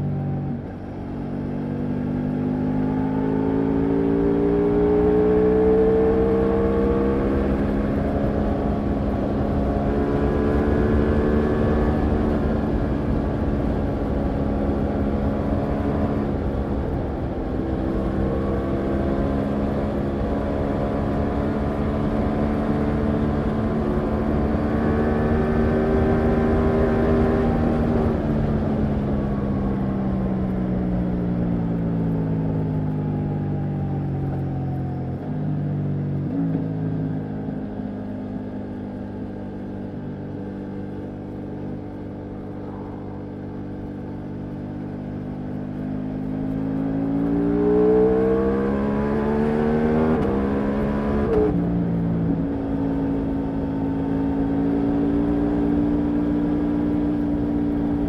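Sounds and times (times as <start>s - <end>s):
motorcycle engine accelerating: 0.0s - 58.0s
wind rush: 42.2s - 44.7s.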